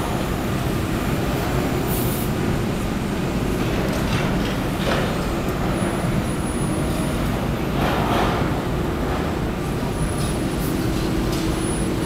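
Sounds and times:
train low rumble: 0:00.0 - 0:12.0
train hiss: 0:01.8 - 0:02.4.

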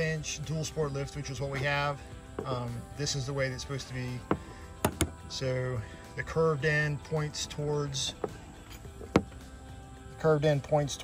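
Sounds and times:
quiet background music: 0:00.0 - 0:11.0.

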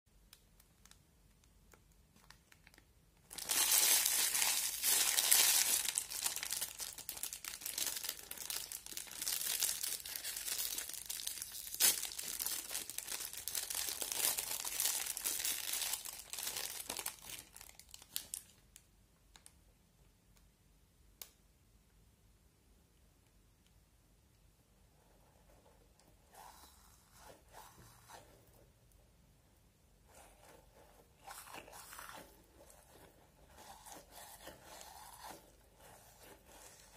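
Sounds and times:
plastic wrapper crinkling: 0:00.6 - 0:19.6.

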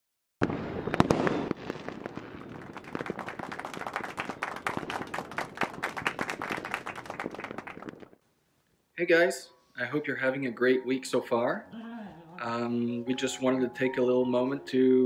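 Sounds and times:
fireworks bangs: 0:00.4 - 0:08.2
fireworks crackling: 0:00.4 - 0:08.2.

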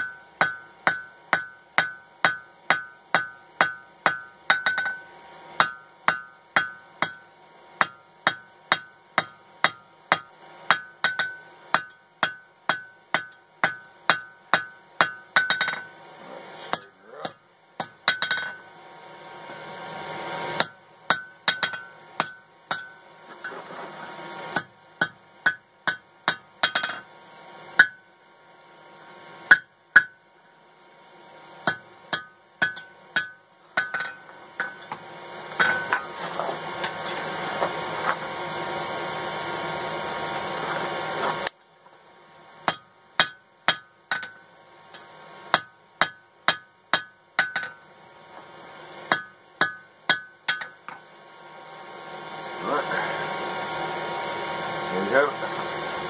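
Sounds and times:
hammer striking steel on anvil: 0:00.0 - 0:16.0, 0:16.7 - 0:18.7, 0:20.6 - 0:23.6, 0:24.5 - 0:27.1, 0:27.8 - 0:28.1, 0:29.5 - 0:30.2, 0:31.6 - 0:36.2, 0:42.6 - 0:47.8, 0:49.1 - 0:51.0.

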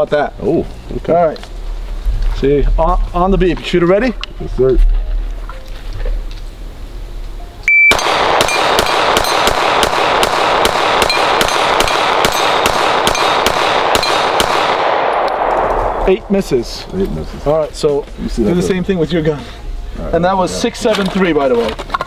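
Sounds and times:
shot timer beep: 0:07.6 - 0:08.7
steel targets ringing: 0:07.9 - 0:10.1, 0:11.0 - 0:14.4
pistol firing rapid shots: 0:07.9 - 0:15.5.

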